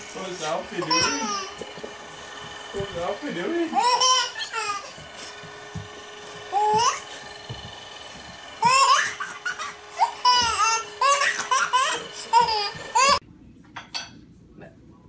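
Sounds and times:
baby laughing: 0.8 - 1.8, 3.8 - 5.0, 8.6 - 13.2.

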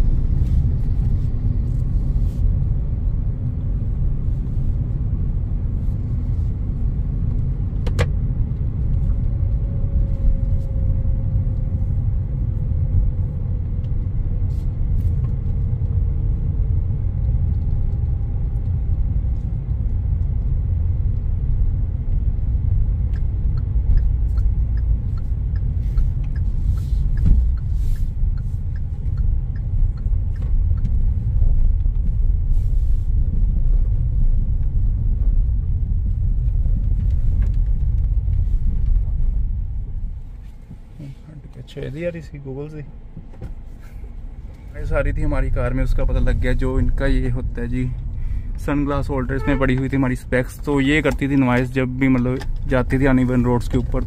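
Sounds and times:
car road and engine rumble: 0.0 - 54.0
light regular ticking: 17.2 - 32.4.

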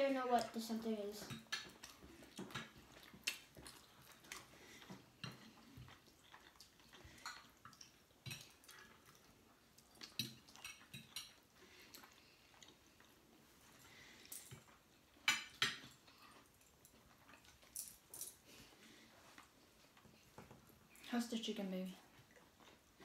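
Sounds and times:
cutlery clinking on plates: 10.1 - 11.4, 15.2 - 16.0.

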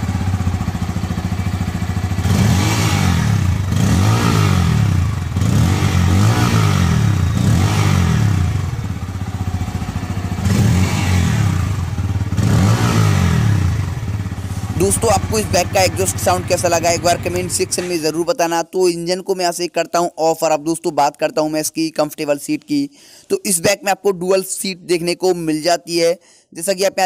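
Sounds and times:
motorcycle engine revving: 0.0 - 18.1.

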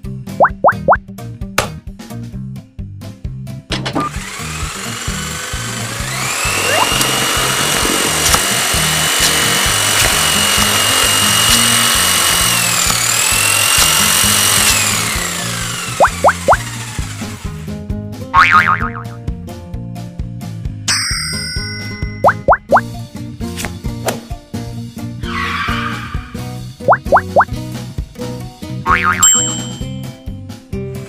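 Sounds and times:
upbeat background music: 0.0 - 31.0
vacuum cleaner motor whine: 4.0 - 17.6.

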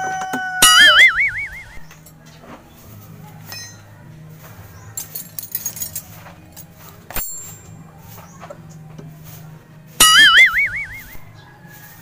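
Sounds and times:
metallic tool clicks: 7.1 - 7.7.

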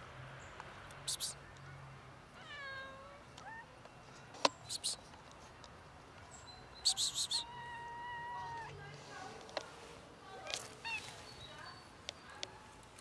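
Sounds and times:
cat chirp: 6.8 - 8.7
cats meowing: 7.0 - 8.7.

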